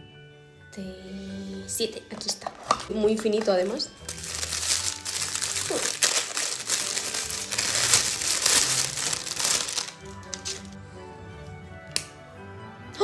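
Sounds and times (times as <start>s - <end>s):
crinkly wrapping crackling: 2.6s - 10.8s.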